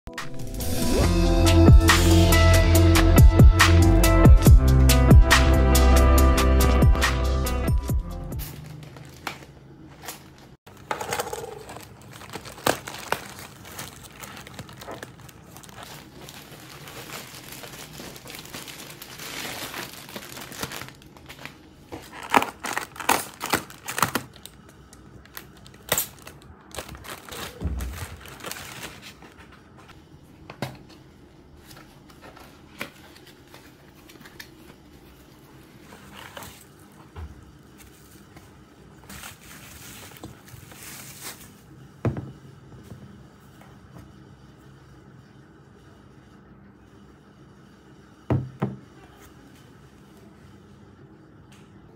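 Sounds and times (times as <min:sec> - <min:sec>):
plastic packaging crinkling: 0:08.4 - 0:29.7, 0:39.0 - 0:41.7
packaging tearing: 0:10.7 - 0:29.3.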